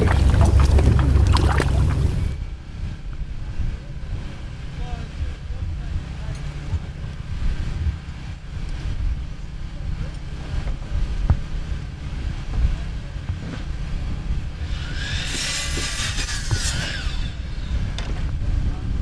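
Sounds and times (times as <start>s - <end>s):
steady low rumble: 0.0s - 15.3s, 16.0s - 19.0s
miter saw cutting timber: 14.6s - 17.8s.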